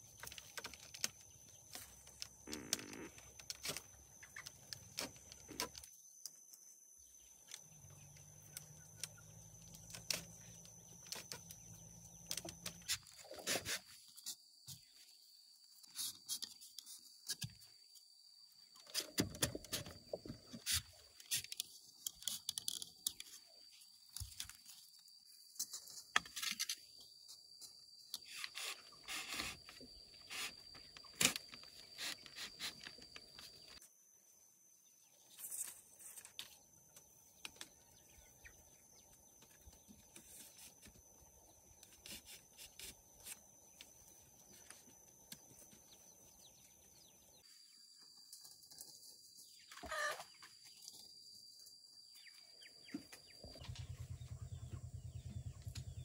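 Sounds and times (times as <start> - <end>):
bamboo scraping and rubbing: 12.2 - 14.9, 28.2 - 33.8, 41.8 - 43.5.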